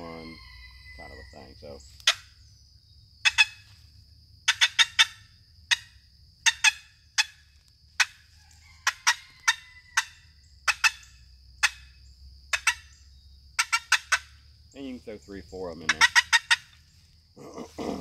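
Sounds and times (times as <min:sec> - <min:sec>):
box turkey call clucks: 0:02.0 - 0:02.4, 0:03.2 - 0:03.8, 0:04.4 - 0:14.4, 0:15.7 - 0:16.9.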